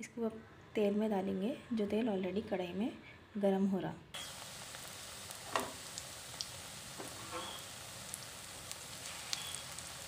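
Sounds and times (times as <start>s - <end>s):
fritters sizzling in oil: 4.2s - 10.0s.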